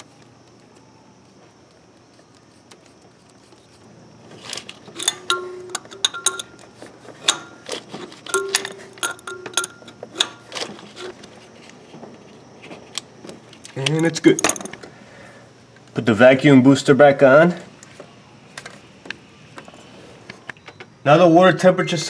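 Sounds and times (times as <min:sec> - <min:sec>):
wrench clicking on metal fittings: 0:05.0 - 0:07.6.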